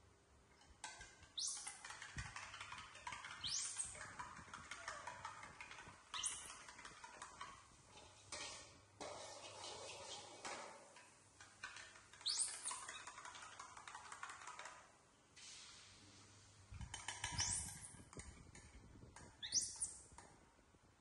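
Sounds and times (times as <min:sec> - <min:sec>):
baby monkeys squeaking: 0:01.3 - 0:06.8, 0:12.2 - 0:13.2, 0:19.4 - 0:20.1.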